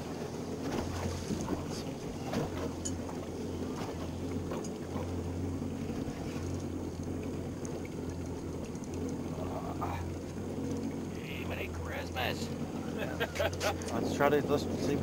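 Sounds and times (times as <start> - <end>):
outboard motor idling: 0.0 - 15.0
light knocks on boat: 0.6 - 5.2.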